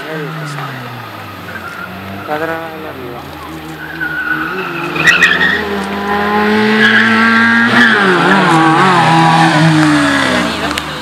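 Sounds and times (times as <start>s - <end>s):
car engine revving hard: 0.0s - 11.0s
tyres squealing: 0.0s - 11.0s.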